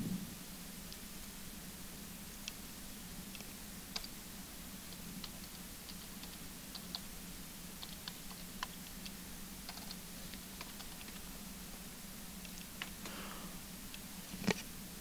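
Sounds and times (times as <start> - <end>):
steady low hum: 0.0 - 15.0
keyboard typing clicks: 3.4 - 4.2, 4.9 - 7.1, 7.8 - 11.2.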